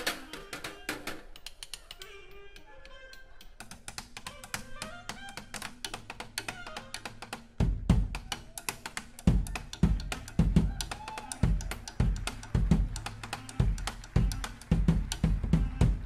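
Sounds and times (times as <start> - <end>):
kick drum hits: 7.6 - 8.2.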